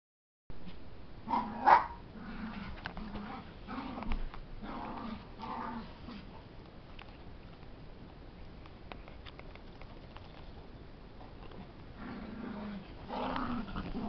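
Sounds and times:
puppy yapping: 1.3 - 2.0
dog play growls: 1.3 - 6.4, 11.4 - 14.0.

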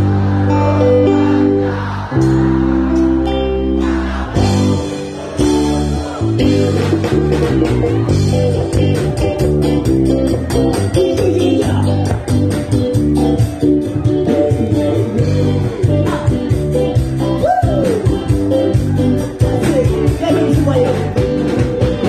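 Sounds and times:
bass guitar: 0.0 - 22.0
electric guitar chords: 0.0 - 22.0.

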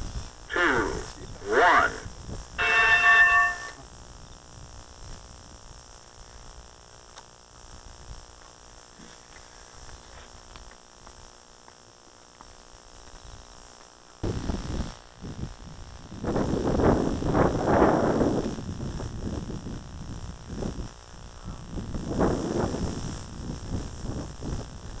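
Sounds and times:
wind rumbling on microphone: 0.0 - 8.4, 14.2 - 25.0
faint hiss and hum: 0.0 - 25.0
faint ticks: 6.9 - 7.4, 8.3 - 14.2.

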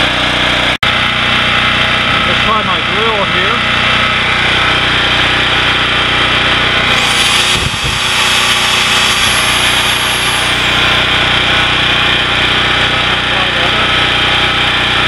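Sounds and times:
generator engine running: 0.0 - 15.0
electric drill whine: 3.8 - 15.0.

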